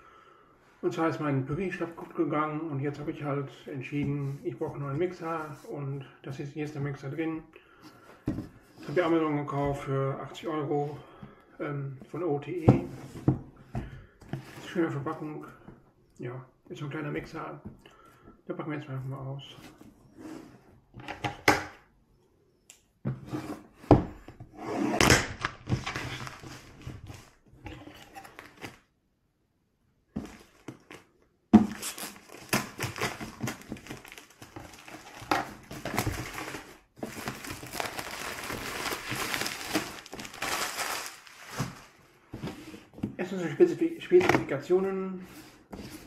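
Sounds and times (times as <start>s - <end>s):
plastic wrap crinkling: 31.7s - 42.0s.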